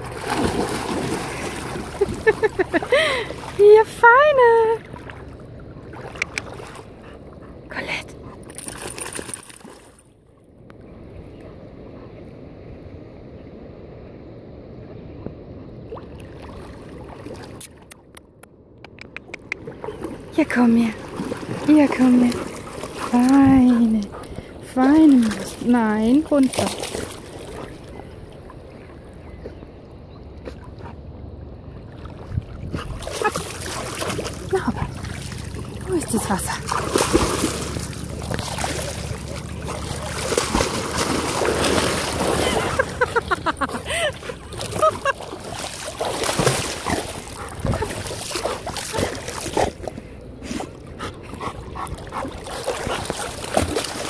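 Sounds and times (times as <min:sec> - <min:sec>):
water sloshing and lapping: 0:00.0 - 0:12.3, 0:15.2 - 0:54.0
low steady rumble: 0:27.8 - 0:45.5.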